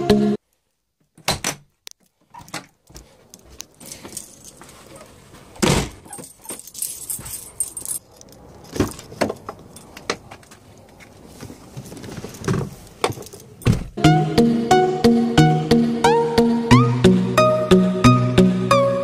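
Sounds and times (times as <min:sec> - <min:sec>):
keys jangling in a lock: 0:03.8 - 0:05.1, 0:06.0 - 0:10.0, 0:13.0 - 0:13.7
heavy thud: 0:13.7 - 0:14.0.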